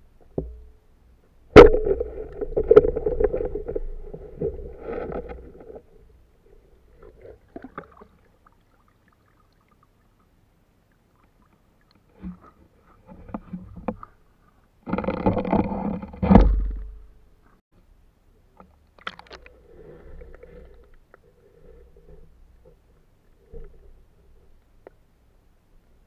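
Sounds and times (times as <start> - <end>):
faint clicks: 24.5 - 25.0.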